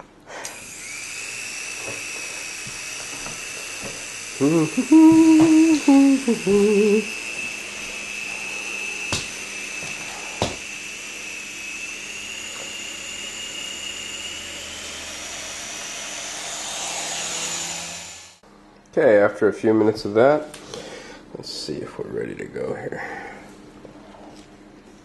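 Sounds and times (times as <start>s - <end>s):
toy helicopter rotor motor whine: 0.5s - 18.4s
person humming: 4.4s - 7.2s.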